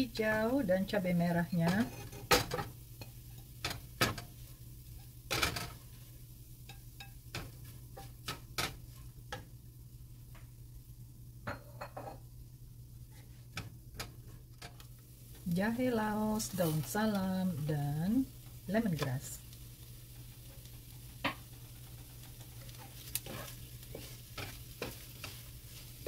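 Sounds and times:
steady low hum: 0.0 - 26.0
spatula scraping frying pan: 1.6 - 6.0, 20.1 - 26.0.

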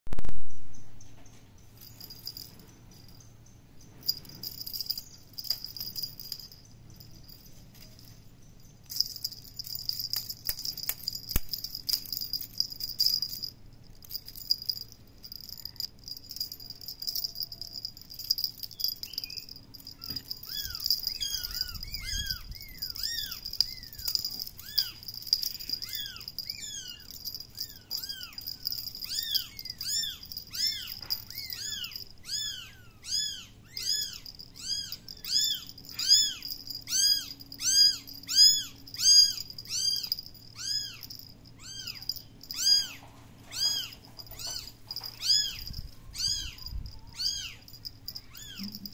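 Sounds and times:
light clicks and rattles: 1.0 - 32.2, 34.1 - 48.9.

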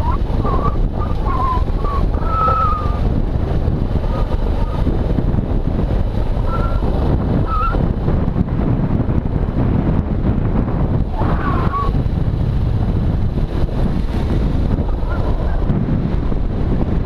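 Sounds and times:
motorcycle running and rolling: 0.0 - 17.0
wind buffeting microphone: 0.0 - 17.0
short whistling tones: 0.4 - 3.0.

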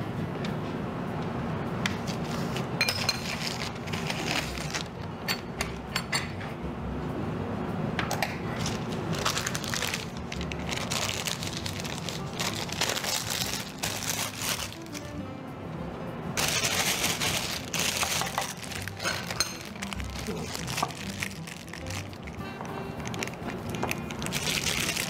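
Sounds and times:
plastic piping bag crinkling: 3.3 - 5.0, 8.6 - 15.1, 16.4 - 25.0.

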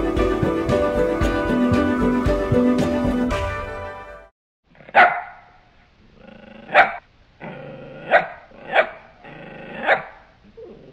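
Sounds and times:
dog barking: 4.8 - 5.6, 6.7 - 7.0, 8.0 - 9.1, 9.8 - 10.3
dog growling: 6.1 - 10.9.

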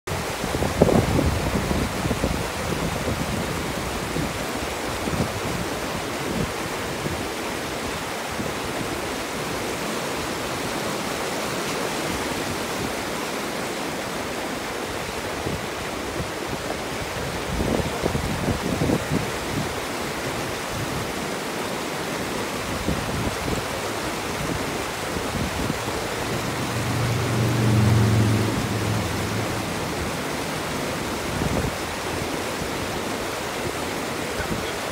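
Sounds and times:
wind buffeting microphone: 0.1 - 8.9, 15.0 - 21.1, 22.6 - 34.9
stream rushing over boulders: 0.1 - 34.9
low hum: 26.1 - 30.9.

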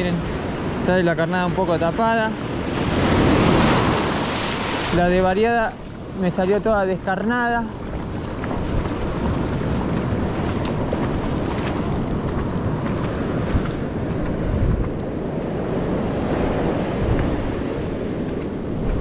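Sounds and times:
breaking surf: 0.0 - 19.0
wind buffeting microphone: 0.0 - 19.0.

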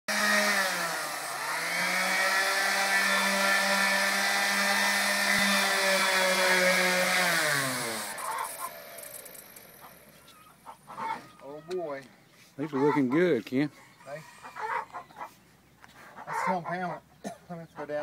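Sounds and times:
electric sander on wood: 0.1 - 10.2.

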